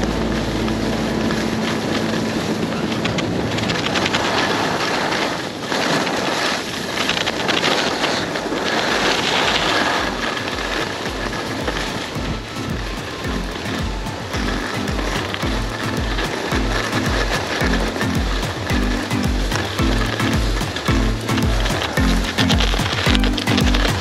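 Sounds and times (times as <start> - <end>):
pulsing bass beat: 0.0 - 3.6, 10.0 - 24.0
skis scraping over snow: 0.0 - 24.0
wind rushing over microphone: 0.0 - 24.0
background music: 10.0 - 24.0.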